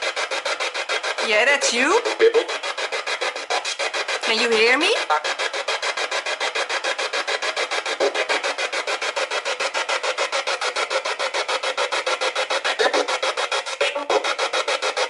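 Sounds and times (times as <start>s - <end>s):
radio scanning through static: 1.2s - 2.6s, 12.6s - 13.2s.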